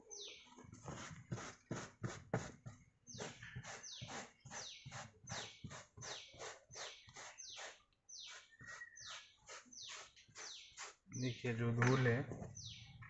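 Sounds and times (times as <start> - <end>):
brush scrubbing carpet mat: 0.8 - 11.0.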